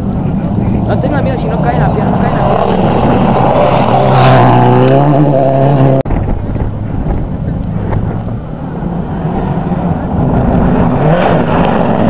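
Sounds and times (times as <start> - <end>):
rally car engine passing at speed: 0.0 - 6.0, 7.8 - 12.0
steady rally car engine: 0.0 - 12.0.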